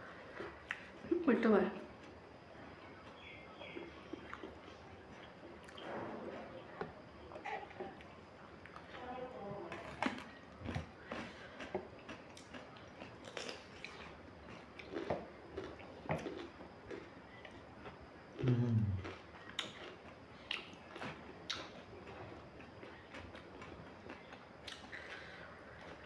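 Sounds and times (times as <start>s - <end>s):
crunchy chewing: 1.9s - 9.0s, 9.6s - 26.0s
person humming low: 18.4s - 19.0s.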